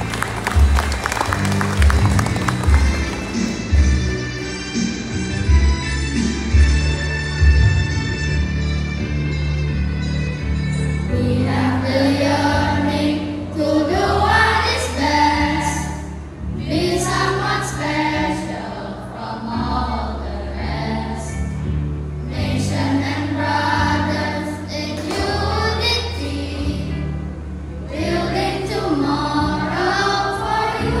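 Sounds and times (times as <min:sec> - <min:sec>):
instrumental accompaniment: 0:00.0 - 0:19.9
children's choir singing: 0:11.0 - 0:21.5, 0:22.2 - 0:31.0.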